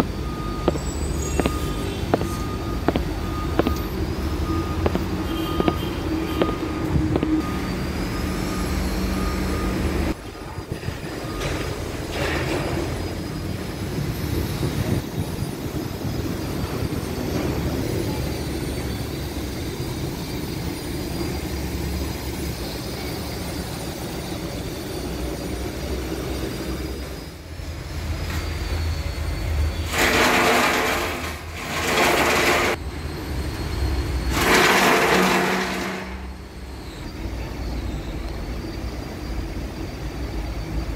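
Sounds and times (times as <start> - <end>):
diesel engine rumbling: 0.0 - 40.9
loud bursts of rushing noise: 34.3 - 36.5.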